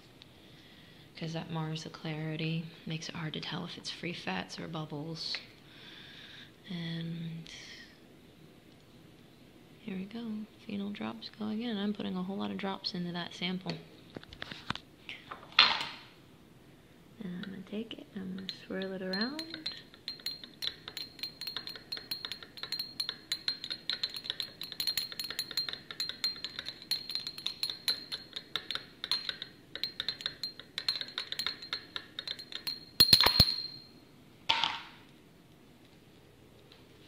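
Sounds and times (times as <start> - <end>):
glass jar clinking: 18.4 - 34.0
glass clattering: 18.4 - 34.8.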